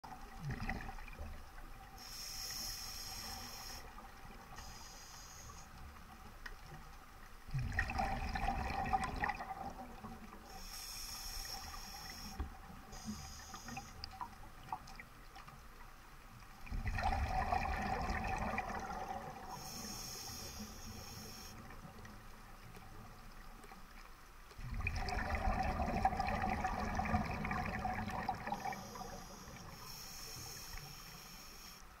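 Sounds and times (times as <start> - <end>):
exhaled bubbles underwater: 0.0 - 2.0, 7.5 - 10.7, 16.6 - 19.7, 24.6 - 29.8
regulator hissing inhalations: 2.0 - 4.0, 4.6 - 5.7, 10.5 - 14.0, 19.5 - 21.6, 28.6 - 31.9.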